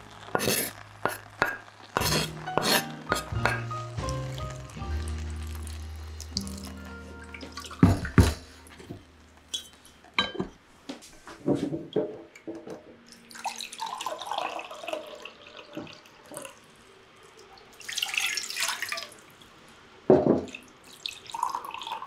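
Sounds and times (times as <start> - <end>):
water pouring into cup: 4.8 - 8.4, 13.1 - 19.4, 20.4 - 22.0.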